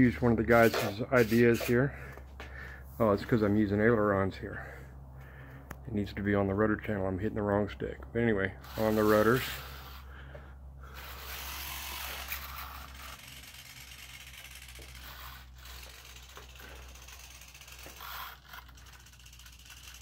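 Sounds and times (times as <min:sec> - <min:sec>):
steady low hum: 0:00.0 - 0:20.0
servos whirring: 0:08.6 - 0:10.2, 0:10.8 - 0:20.0.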